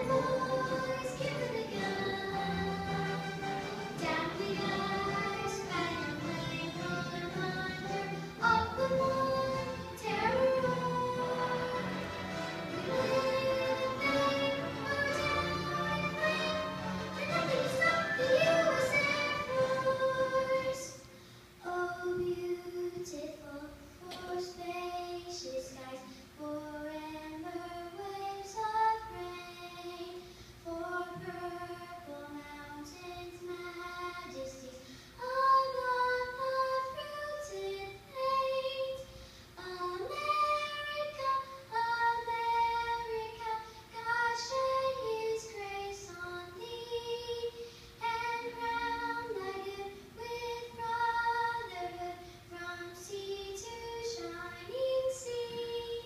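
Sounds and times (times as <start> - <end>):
girl singing: 0.0 - 12.0, 12.8 - 56.0
electric keyboard accompaniment: 0.0 - 20.9.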